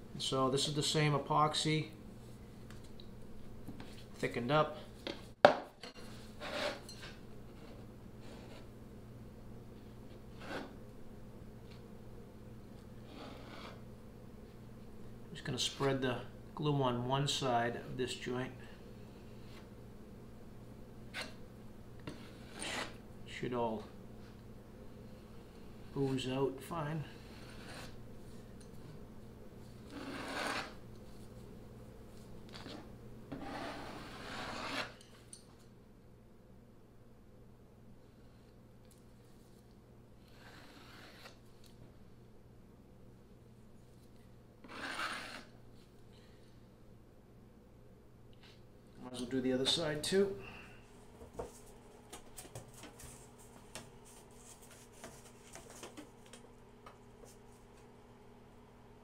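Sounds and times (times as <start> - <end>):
faint steady hum: 0.0 - 59.0
putty knife scraping glue: 22.1 - 23.0, 29.9 - 30.8, 33.4 - 35.0, 40.3 - 41.4, 44.6 - 45.5.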